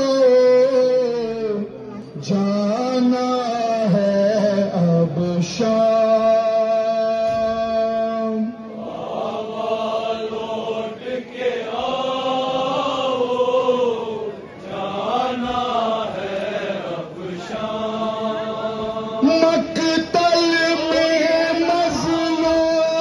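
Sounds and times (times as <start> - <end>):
man chanting a lament: 0.0 - 8.6, 19.1 - 23.0
crowd chanting in chorus: 3.0 - 23.0.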